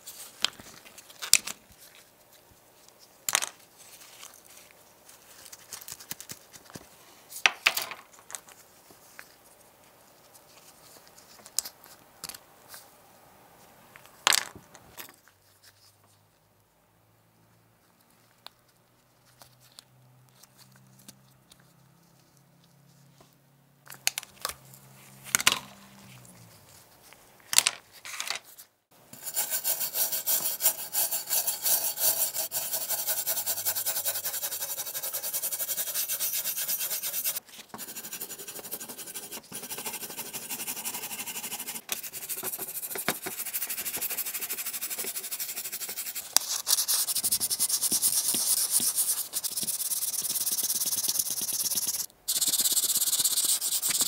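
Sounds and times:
stiff brush scrubbing metal: 29.2s - 44.0s.

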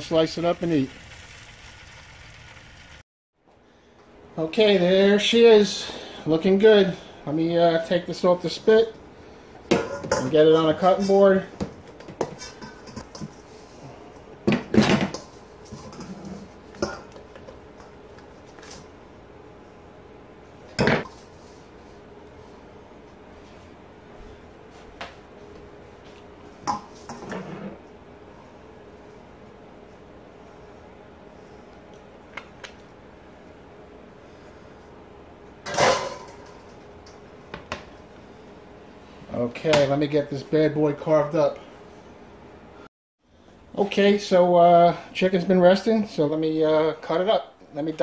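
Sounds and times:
metal bowl clattering on grate: 35.6s - 36.6s.

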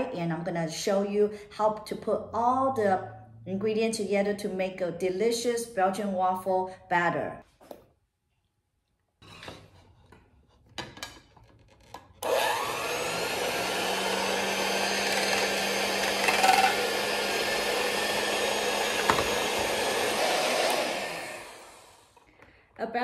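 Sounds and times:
electric hand mixer whipping: 12.2s - 22.3s.

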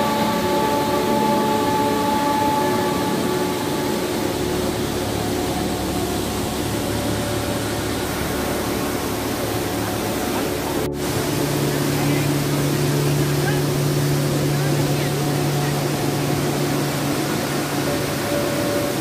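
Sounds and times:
faint steady tones humming: 0.0s - 19.0s
waterfall rushing: 0.0s - 19.0s.

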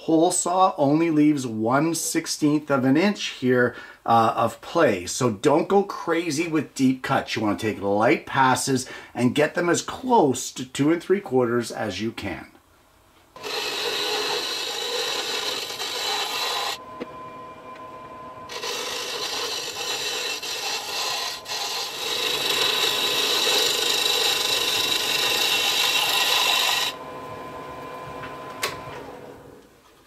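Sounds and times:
lathe cutter scraping wood: 13.4s - 17.1s, 17.7s - 29.3s
lathe humming: 13.4s - 29.7s.

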